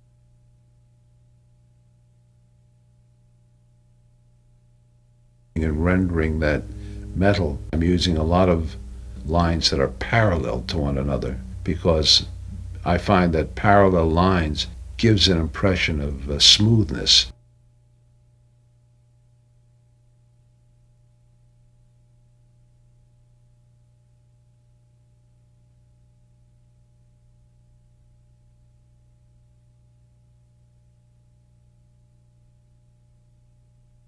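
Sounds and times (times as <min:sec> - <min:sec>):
steady low hum: 0:00.0 - 0:23.8
faint high tones: 0:05.6 - 0:17.0.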